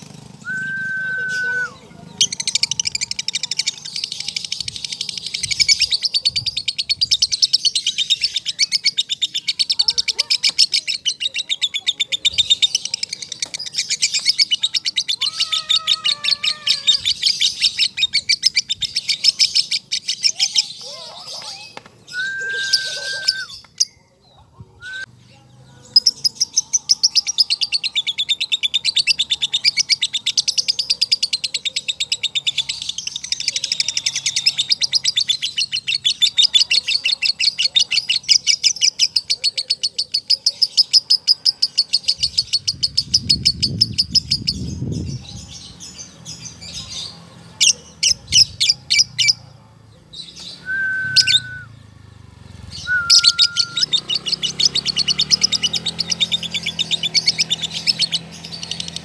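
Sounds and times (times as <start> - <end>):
bird whistled notes: 0.4 - 1.9, 22.1 - 23.7, 50.4 - 51.8, 52.7 - 54.3.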